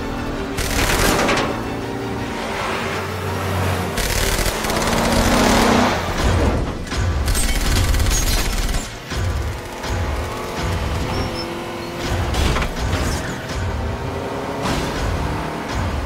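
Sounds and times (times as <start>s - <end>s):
dramatic music score: 0.0s - 16.0s
engines: 0.0s - 16.0s
rapid gunfire: 0.6s - 1.4s, 4.0s - 5.8s, 7.0s - 10.1s.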